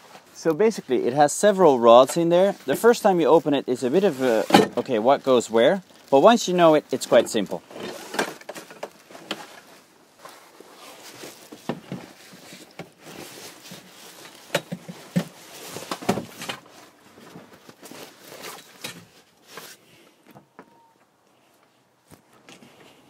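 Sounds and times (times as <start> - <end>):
fabric rustling and flapping: 1.9 - 19.8.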